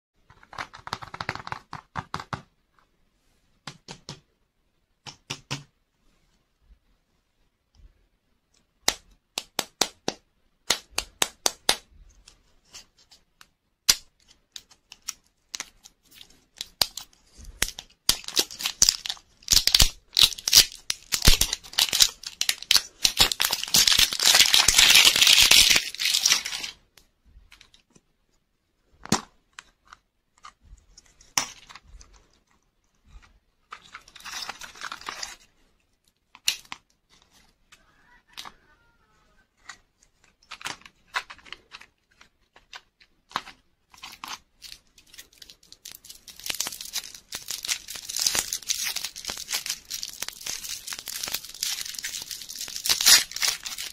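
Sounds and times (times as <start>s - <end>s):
plastic wrapper crinkling: 14.9s - 26.8s, 40.4s - 53.9s.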